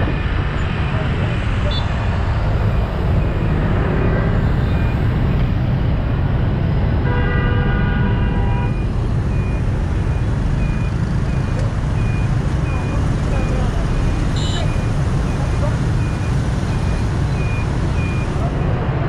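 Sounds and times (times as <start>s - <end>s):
traffic engines rumbling: 0.0s - 19.0s
vehicle horn: 7.0s - 8.7s.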